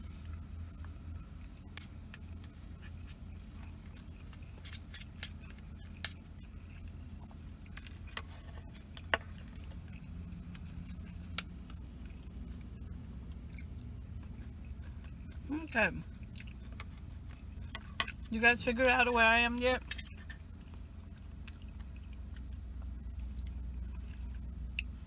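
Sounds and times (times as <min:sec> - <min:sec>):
chewing: 0:00.0 - 0:25.0
low engine hum: 0:00.0 - 0:25.0.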